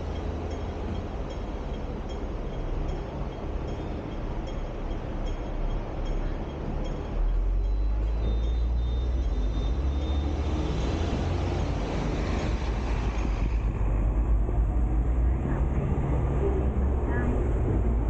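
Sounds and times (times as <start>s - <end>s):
tram wheels rumbling on rails: 0.0s - 18.0s.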